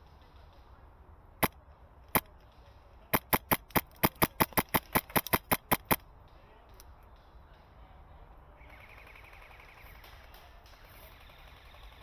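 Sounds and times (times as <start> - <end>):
airsoft rifle shots cracking: 3.1 - 6.0.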